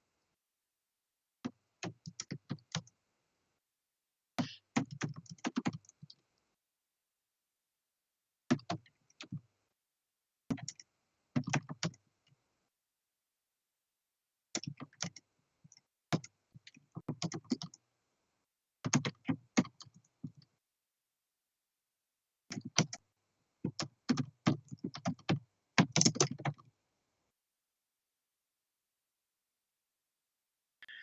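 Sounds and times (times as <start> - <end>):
typing on computer keyboard: 1.4 - 3.0, 4.4 - 6.2, 8.5 - 9.4, 10.5 - 12.0, 14.5 - 17.8, 18.8 - 20.5, 22.5 - 23.0, 23.6 - 26.7.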